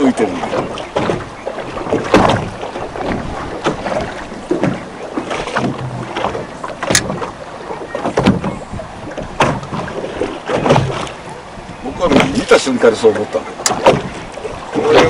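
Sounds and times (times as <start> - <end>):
water splashing against boat hull: 0.0 - 15.0
wind on microphone: 0.4 - 12.6, 13.5 - 15.0
sharp knocks: 1.9 - 2.5, 9.4 - 9.8, 13.6 - 14.2.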